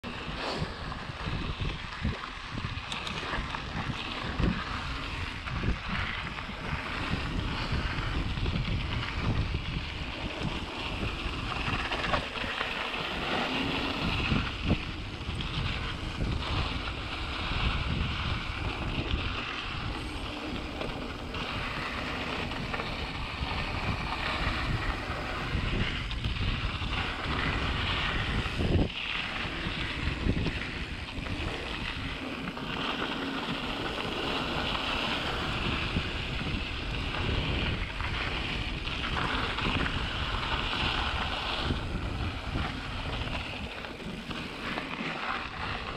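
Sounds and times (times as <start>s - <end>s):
tyres on loose dirt: 0.0s - 45.9s
wind buffeting microphone: 0.0s - 45.9s.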